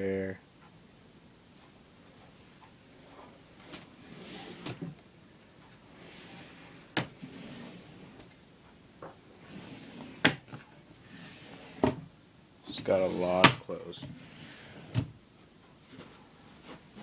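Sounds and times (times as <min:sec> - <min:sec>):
wooden drawers sliding and knocking: 0:03.1 - 0:05.0, 0:05.9 - 0:08.3, 0:09.0 - 0:12.1, 0:12.7 - 0:15.2.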